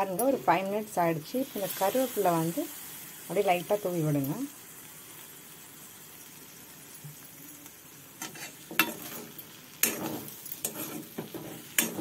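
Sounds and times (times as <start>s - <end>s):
vegetables sizzling in oil: 0.0s - 12.0s
metal spatula scraping pan: 8.2s - 12.0s.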